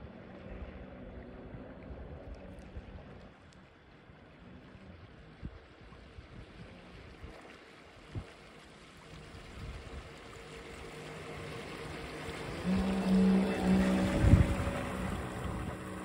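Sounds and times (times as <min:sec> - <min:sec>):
boat motors humming: 0:00.0 - 0:16.0
water noise: 0:00.0 - 0:16.0
wind noise: 0:12.7 - 0:16.0.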